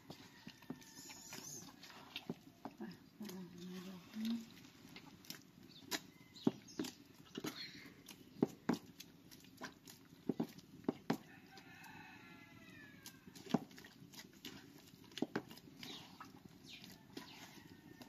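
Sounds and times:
rooster crowing: 0:11.2 - 0:13.3.

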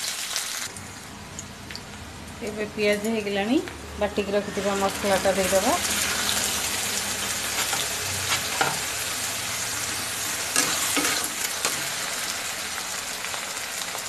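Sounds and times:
paste sizzling in hot oil: 0:04.5 - 0:14.0
metal spatula scraping: 0:07.4 - 0:09.0, 0:10.5 - 0:12.1.

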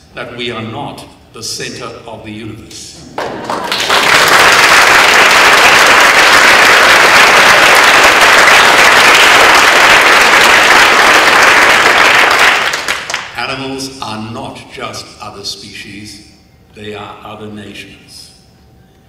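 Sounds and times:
audience applauding: 0:03.2 - 0:13.4.

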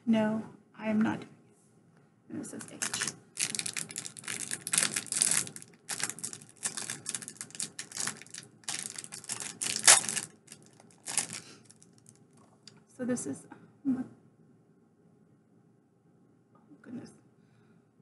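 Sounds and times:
packaging crinkling: 0:02.6 - 0:12.2.

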